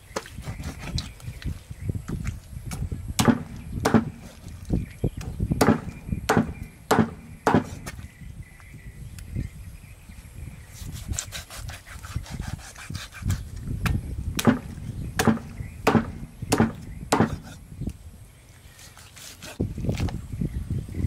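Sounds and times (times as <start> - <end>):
cleaver chopping on wooden block: 2.7 - 4.4, 5.2 - 8.0, 13.8 - 17.6.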